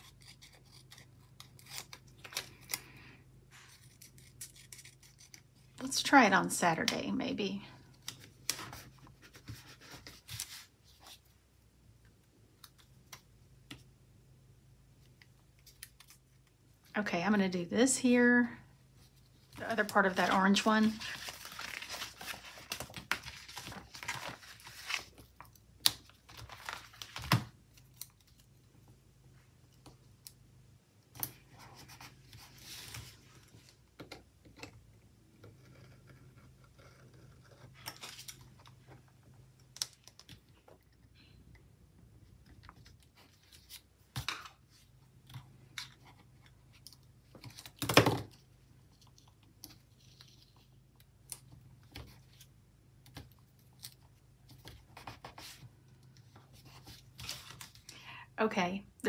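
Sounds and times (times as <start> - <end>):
paper rustling: 8.0 - 11.3, 19.0 - 28.4.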